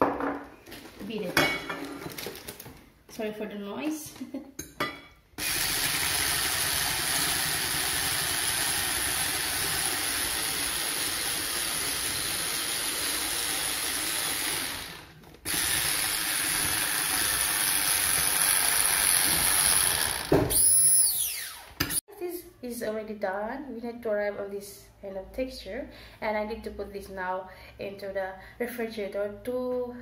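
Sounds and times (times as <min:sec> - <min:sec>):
electric hand mixer running: 0:05.4 - 0:22.0.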